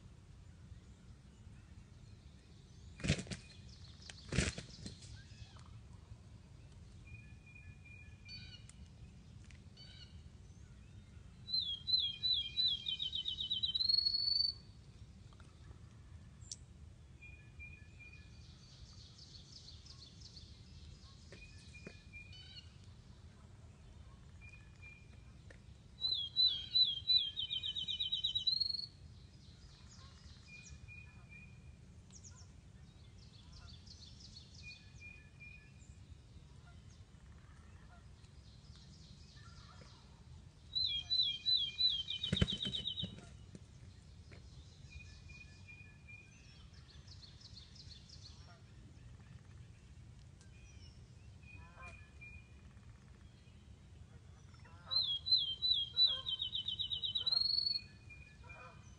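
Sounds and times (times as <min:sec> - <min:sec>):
songbird whistling: 0:11.6 - 0:14.6
distant birds calling: 0:40.8 - 0:43.8.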